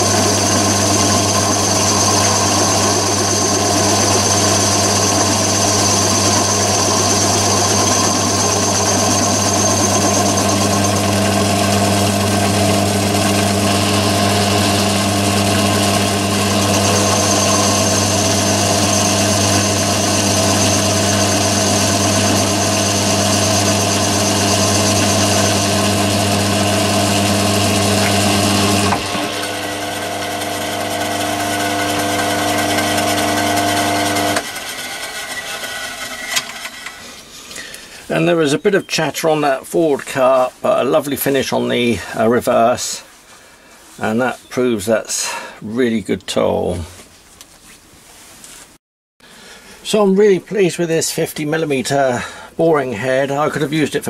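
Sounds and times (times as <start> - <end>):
high machine whine: 0.0 - 37.3
lathe cutting steel with hum: 0.0 - 37.3.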